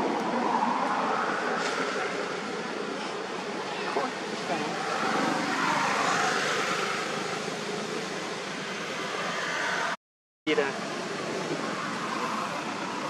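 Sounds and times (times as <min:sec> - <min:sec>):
water: 0:00.0 - 0:09.9, 0:10.5 - 0:13.0
wind: 0:00.0 - 0:13.0.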